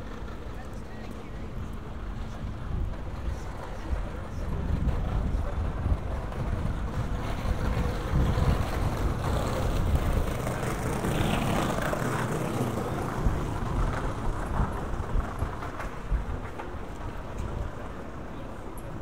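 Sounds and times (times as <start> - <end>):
low rumble of traffic: 0.0 - 19.0
wind buffeting microphone: 0.0 - 19.0
vehicle passing: 7.6 - 15.5.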